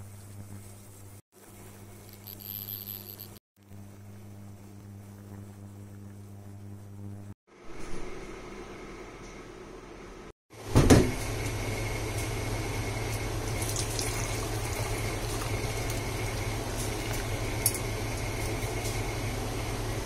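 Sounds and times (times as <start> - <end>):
tea pouring through strainer: 13.5 - 19.0.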